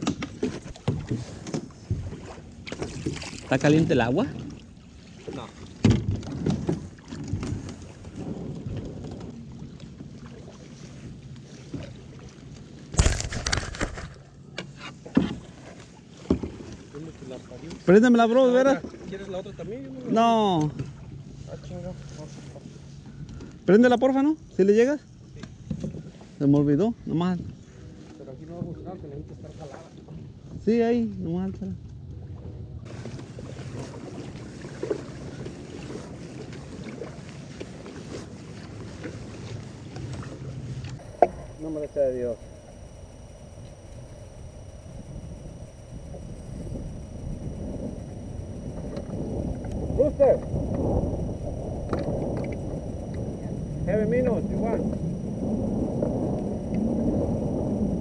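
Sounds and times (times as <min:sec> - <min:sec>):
paddle knocks and splashes: 0:00.0 - 0:17.0, 0:32.9 - 0:41.4
water and hull noise: 0:00.0 - 0:58.0
wind noise on microphone: 0:05.8 - 0:09.8, 0:40.5 - 0:58.0.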